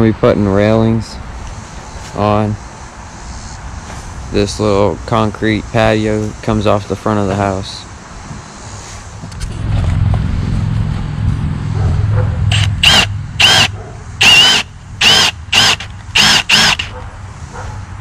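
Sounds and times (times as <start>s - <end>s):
low rumble: 9.2s - 13.5s
cordless drill whining: 12.5s - 16.9s.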